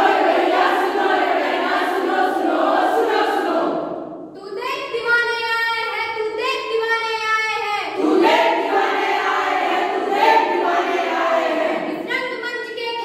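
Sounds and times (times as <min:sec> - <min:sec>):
group singing together: 0:00.0 - 0:04.2, 0:08.0 - 0:12.0.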